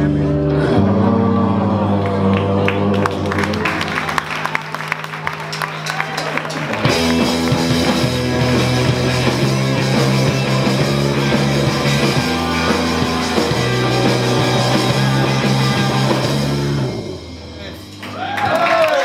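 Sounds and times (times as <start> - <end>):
held bass notes: 0.0 - 18.0
rock band playing: 2.2 - 18.2.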